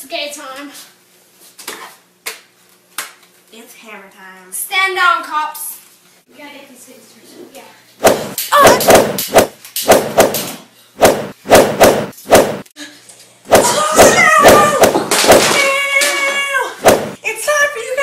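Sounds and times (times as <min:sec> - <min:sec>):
child yelling: 0:08.5 - 0:08.8, 0:13.6 - 0:14.8, 0:15.6 - 0:18.0.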